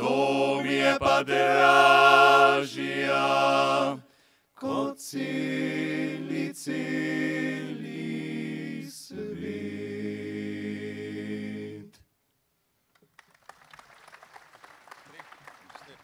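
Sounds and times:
a cappella choir singing: 0.0s - 12.1s
applause: 13.0s - 16.0s.

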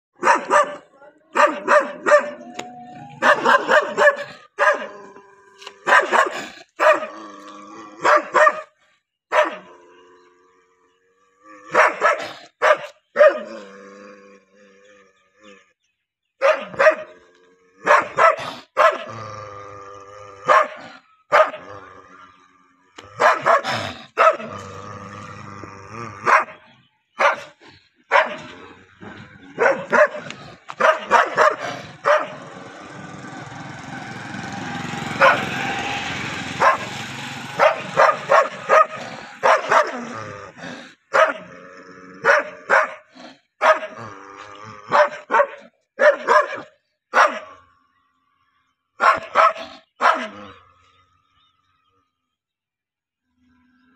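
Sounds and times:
dog barking aggressively: 0.2s - 2.4s, 3.2s - 5.0s, 5.8s - 7.2s, 8.0s - 8.7s, 9.3s - 9.7s, 11.6s - 13.6s, 16.4s - 17.2s, 17.8s - 19.2s, 20.4s - 21.7s, 23.0s - 24.7s, 26.2s - 28.6s, 29.4s - 40.3s, 41.1s - 41.6s, 42.2s - 44.0s, 44.9s - 47.6s, 49.0s - 50.4s.

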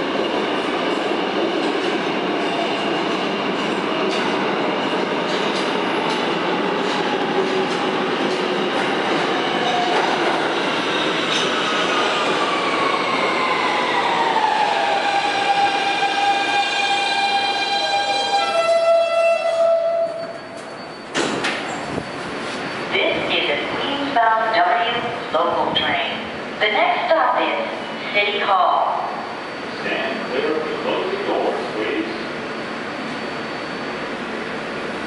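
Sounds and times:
train wheels rumbling on rails: 0.0s - 18.6s.

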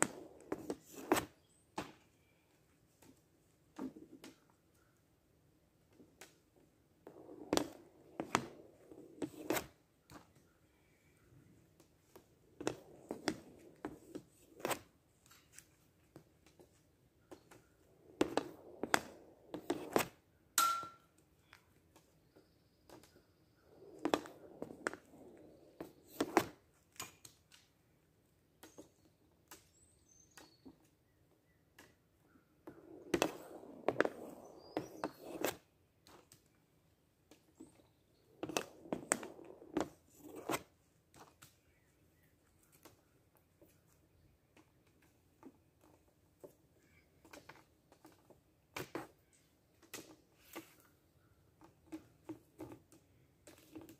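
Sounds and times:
hockey stick clacking and scraping ball: 0.0s - 2.0s, 7.1s - 10.4s, 12.0s - 15.9s, 17.4s - 21.2s, 23.9s - 27.2s, 32.7s - 36.3s, 38.4s - 41.4s.

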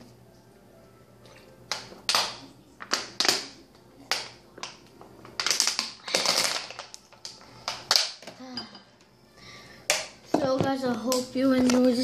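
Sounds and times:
plastic bottle crinkling: 4.1s - 8.3s.

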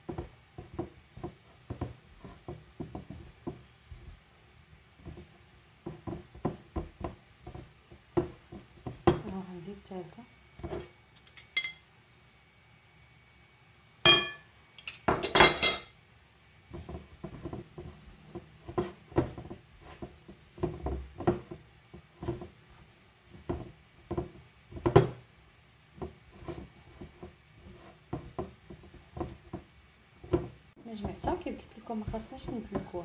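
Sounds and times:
glass bowl clinking: 11.3s - 11.8s, 14.0s - 15.9s.

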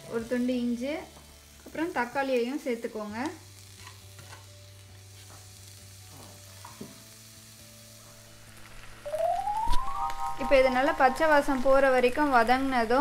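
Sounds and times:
vegetables sizzling in oil: 0.0s - 13.0s
faint knocks in a pan: 6.1s - 7.0s.

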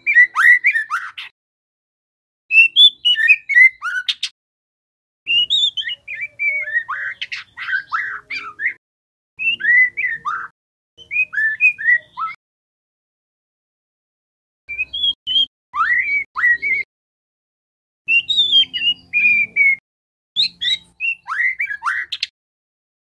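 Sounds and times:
bird singing whistles and chirps: 0.0s - 1.3s, 2.5s - 4.3s, 5.3s - 8.8s, 9.4s - 12.4s, 14.7s - 16.9s, 18.1s - 19.8s, 20.4s - 22.3s.

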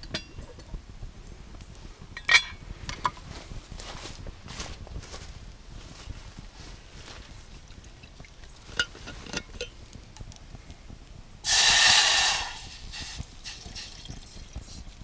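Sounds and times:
water pouring into metal pot: 11.5s - 14.8s.

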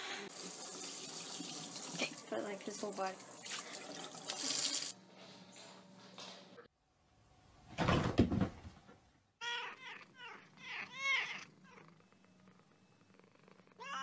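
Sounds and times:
cat meowing: 9.4s - 12.0s, 13.8s - 14.0s.

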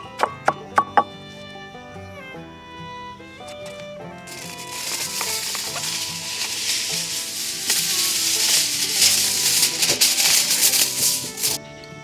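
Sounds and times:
soft background music: 0.0s - 12.0s
aluminium foil crinkling: 4.3s - 11.6s.

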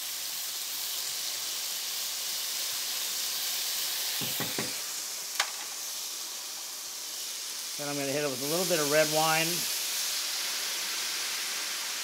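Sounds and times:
food sizzling in hot oil: 0.0s - 12.0s
soft knocks: 4.2s - 4.8s.

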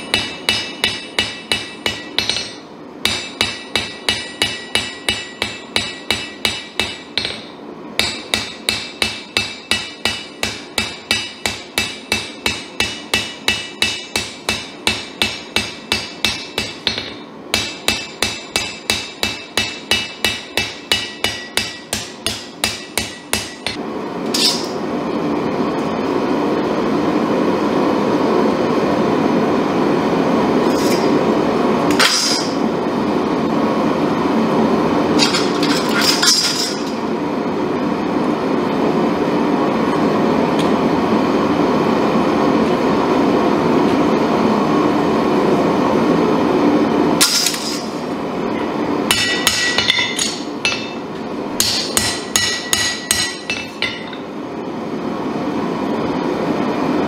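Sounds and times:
hammer ringing on anvil: 0.0s - 23.8s, 49.1s - 51.0s, 51.6s - 54.3s
metallic clank: 22.7s - 24.8s.

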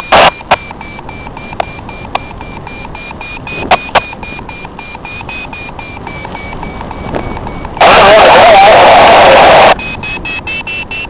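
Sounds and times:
variometer beeping rapidly: 0.0s - 11.0s
wind rush on microphone: 3.4s - 4.8s, 5.4s - 10.5s.

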